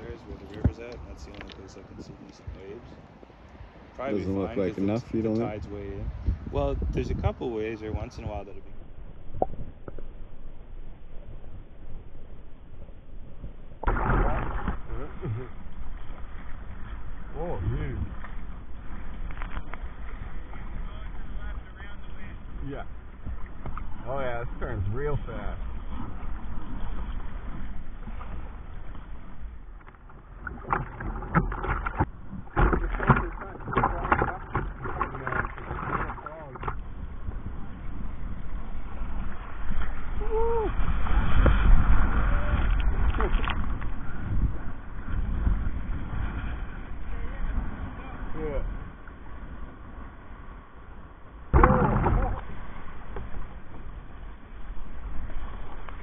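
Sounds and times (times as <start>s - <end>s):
wind rumbling on microphone: 0.0s - 56.0s
water sloshing against kayak hull: 12.8s - 50.6s, 51.3s - 56.0s
sharp water splashes: 13.8s - 16.2s, 29.5s - 36.8s
wave and spray crashing: 13.8s - 36.8s, 37.5s - 48.8s.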